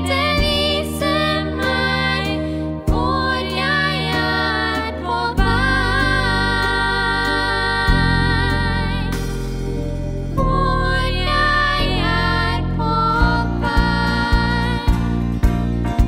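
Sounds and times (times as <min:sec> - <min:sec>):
girls singing: 0:00.0 - 0:09.2, 0:10.4 - 0:15.1
instrumental accompaniment: 0:00.0 - 0:16.0.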